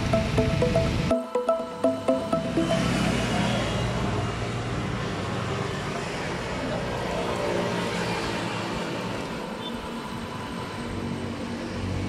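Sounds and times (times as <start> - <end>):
street traffic with engines running: 3.0 - 12.0.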